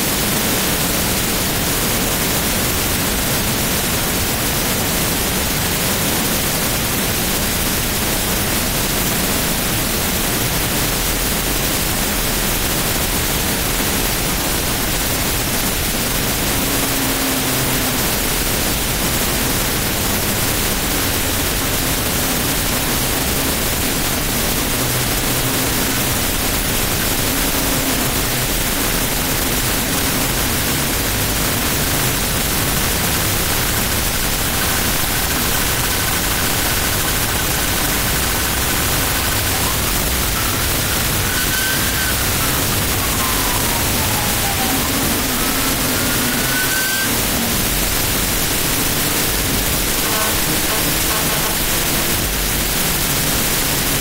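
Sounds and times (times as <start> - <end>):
jet engines roaring: 11.0 - 54.0
faint wavering drone: 15.8 - 53.0.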